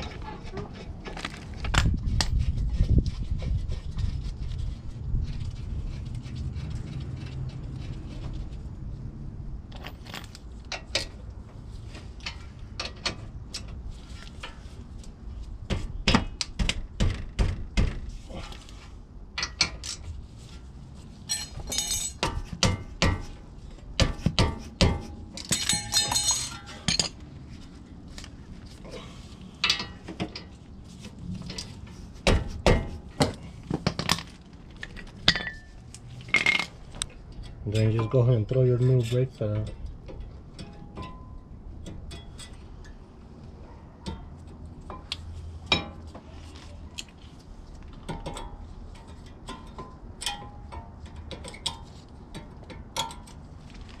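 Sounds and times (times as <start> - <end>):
metal parts and tools clinking: 9.7 - 11.2, 21.2 - 22.5, 25.2 - 27.3, 33.0 - 43.0.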